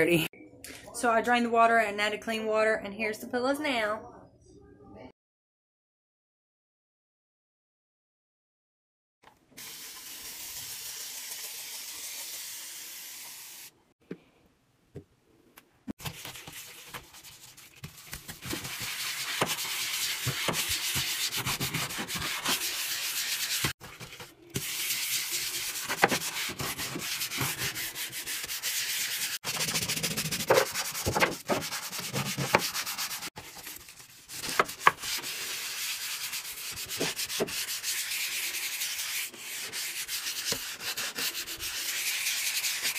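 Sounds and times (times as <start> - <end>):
sponge scrubbing countertop: 16.0 - 42.9.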